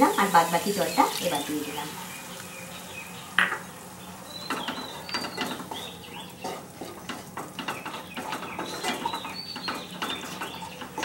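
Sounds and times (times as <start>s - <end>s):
spatula scraping wok: 4.3s - 11.0s.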